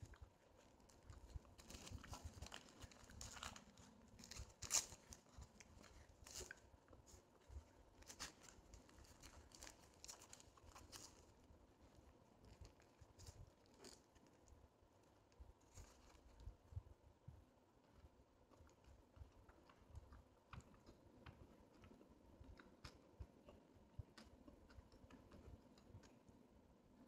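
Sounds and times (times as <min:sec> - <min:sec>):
paper wrapper crinkling and tearing: 0:00.8 - 0:07.2, 0:08.0 - 0:11.5.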